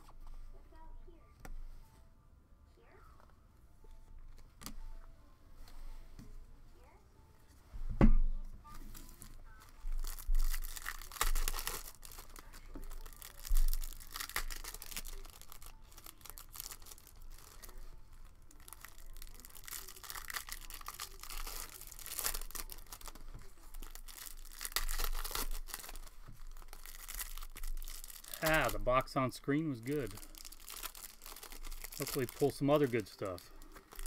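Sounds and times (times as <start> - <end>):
plastic wrapper crinkling and tearing: 8.7 - 34.0.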